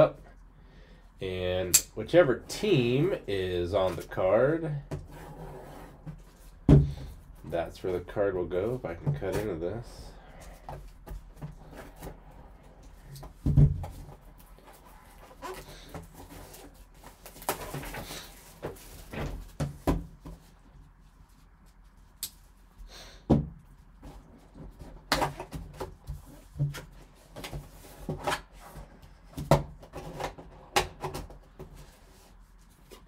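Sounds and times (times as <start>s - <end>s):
cardboard and plastic rustling: 8.7s - 22.6s.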